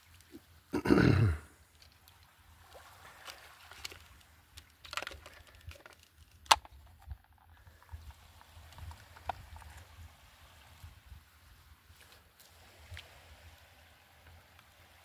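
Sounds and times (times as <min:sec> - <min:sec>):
small waves lapping: 0:01.4 - 0:06.0, 0:07.6 - 0:15.0.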